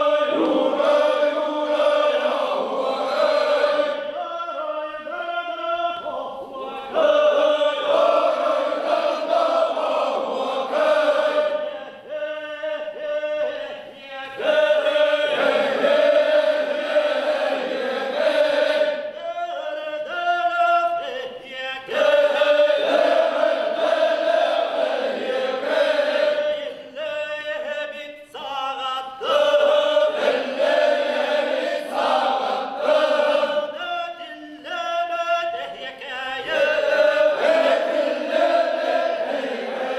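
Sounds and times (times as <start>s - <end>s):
male chorus singing in unison: 0.0s - 39.9s.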